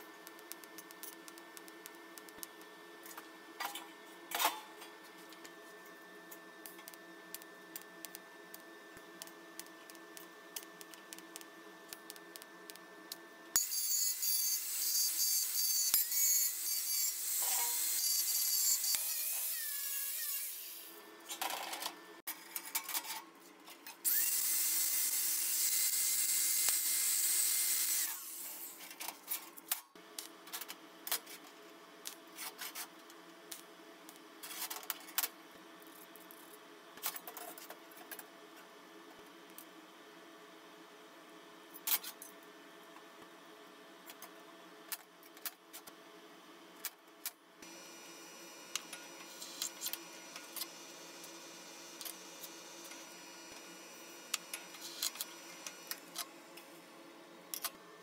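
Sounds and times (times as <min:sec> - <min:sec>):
angle grinder grinding metal: 0:13.6 - 0:20.9
welding arc buzzing: 0:13.6 - 0:21.0, 0:24.1 - 0:28.8.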